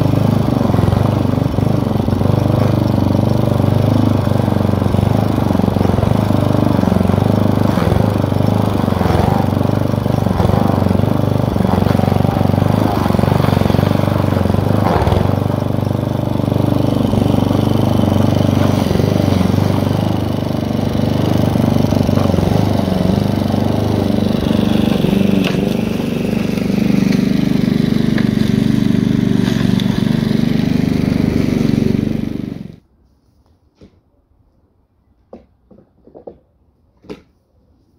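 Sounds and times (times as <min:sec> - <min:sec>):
lawn mower engine cutting grass: 0:00.0 - 0:32.8.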